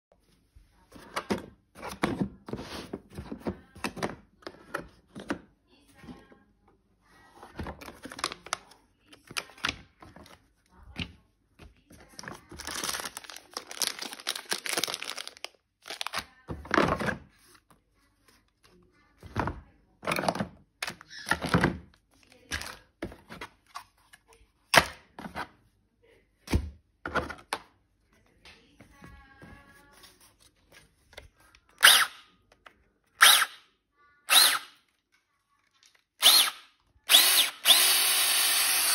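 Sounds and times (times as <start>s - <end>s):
paper and plastic bags rustling: 11.8s - 16.5s.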